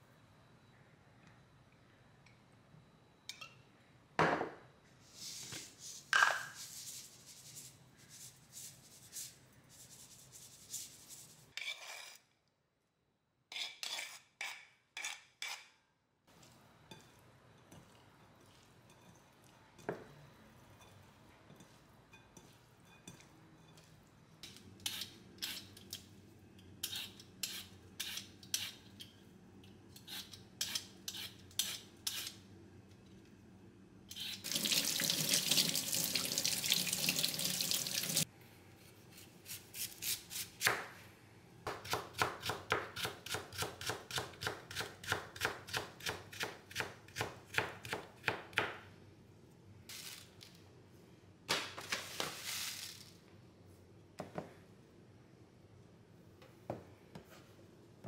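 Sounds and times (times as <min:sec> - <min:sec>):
kitchen faucet running: 0:34.4 - 0:38.2.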